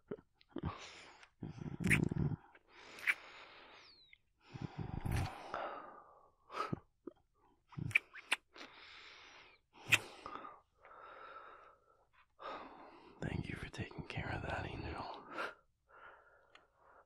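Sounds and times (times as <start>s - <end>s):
mouth clicks: 0.0s - 3.3s, 4.8s - 5.4s, 7.8s - 8.7s, 9.8s - 10.2s.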